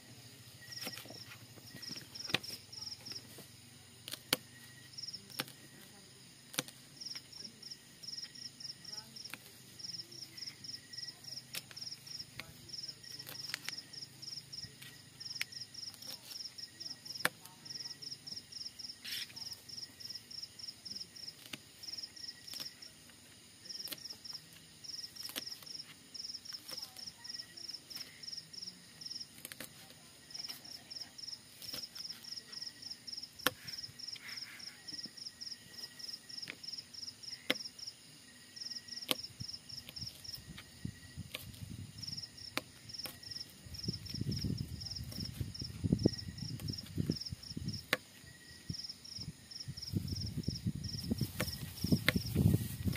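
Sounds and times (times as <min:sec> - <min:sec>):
insect chirping: 0:00.0 - 0:52.9.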